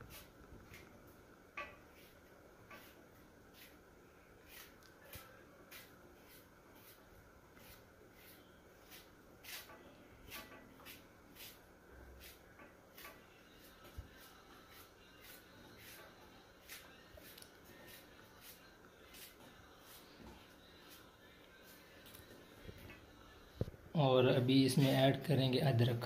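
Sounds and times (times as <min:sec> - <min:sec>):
low steady hum: 0:00.0 - 0:26.0
knife scraping ginger: 0:02.7 - 0:03.0, 0:04.5 - 0:07.0, 0:07.6 - 0:11.6, 0:12.2 - 0:20.0.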